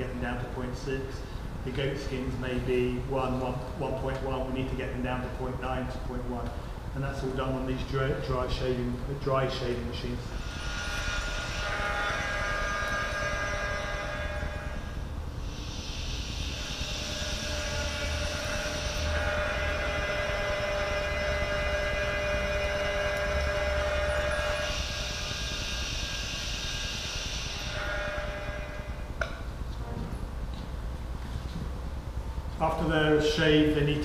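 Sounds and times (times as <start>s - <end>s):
machine whine: 0.0s - 34.0s
high hissing: 10.2s - 29.5s.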